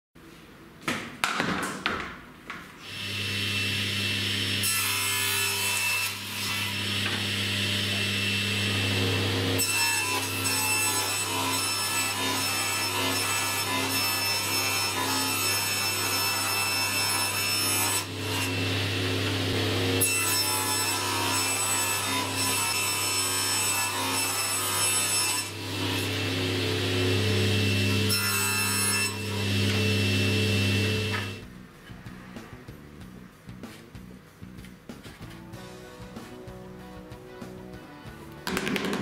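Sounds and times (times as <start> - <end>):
table saw cutting planks: 2.8 - 31.4.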